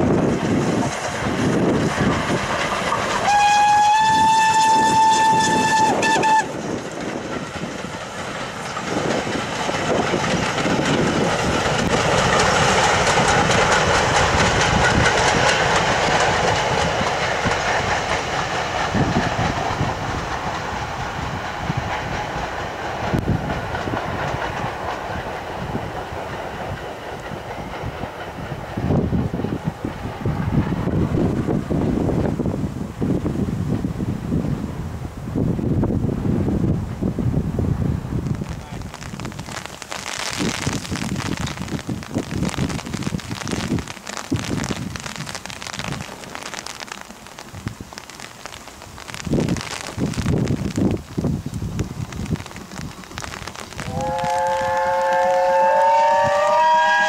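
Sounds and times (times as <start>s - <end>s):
wheels clattering over rail joints: 0.0s - 33.2s
steam locomotive whistle: 3.2s - 6.6s, 53.8s - 57.0s.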